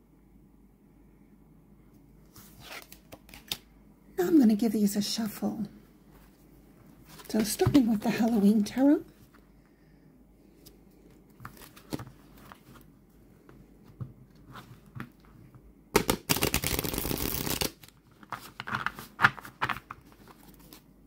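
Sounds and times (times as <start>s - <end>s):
cards tapping and sliding: 11.4s - 12.8s, 16.0s - 20.8s
riffle shuffle of cards: 16.0s - 20.9s.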